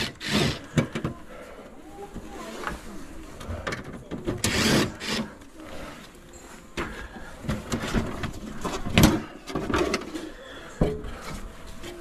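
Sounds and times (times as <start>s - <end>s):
cordless drill driving: 0.0s - 0.6s, 4.5s - 5.3s.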